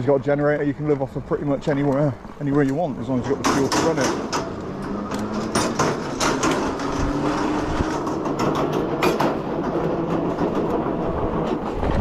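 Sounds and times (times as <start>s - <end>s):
tyres rattling over metal grating: 0.0s - 12.0s
sharp knocks: 3.3s - 10.8s.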